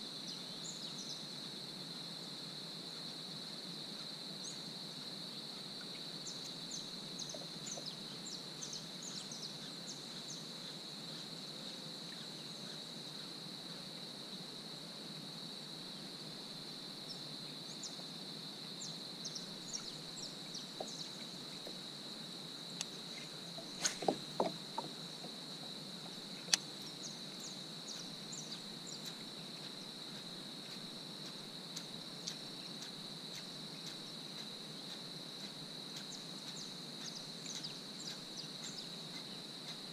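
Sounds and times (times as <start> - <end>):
high-pitched insect drone: 0.0 - 39.9
knocks: 23.6 - 25.3.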